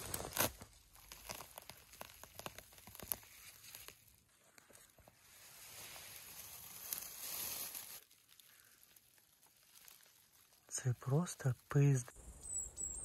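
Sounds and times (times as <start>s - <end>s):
crisp crackles: 0.0s - 12.1s
dry grass and ferns rustling: 0.0s - 12.8s.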